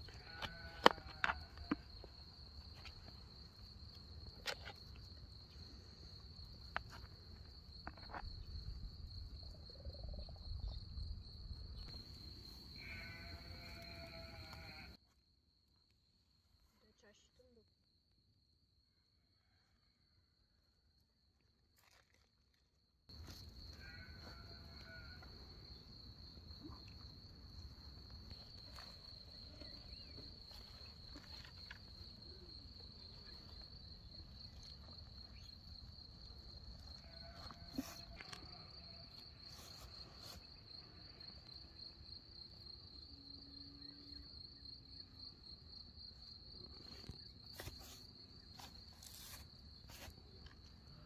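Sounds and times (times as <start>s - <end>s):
high-pitched insect trill: 6.2s - 15.0s, 23.1s - 50.2s.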